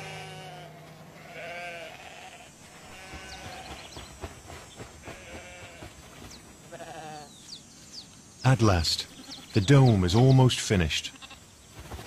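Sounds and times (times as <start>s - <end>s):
sheep bleating: 0.0s - 3.8s, 5.0s - 5.9s, 6.7s - 7.3s, 11.0s - 11.4s.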